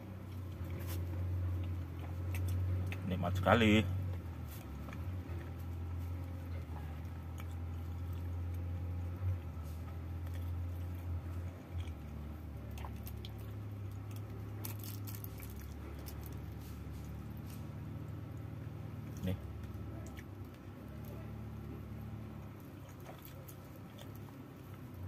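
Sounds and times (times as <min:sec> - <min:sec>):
chewing and wet squishing: 0:00.0 - 0:25.0
steady low hum: 0:00.0 - 0:25.0
plastic bag crinkling: 0:14.2 - 0:16.6.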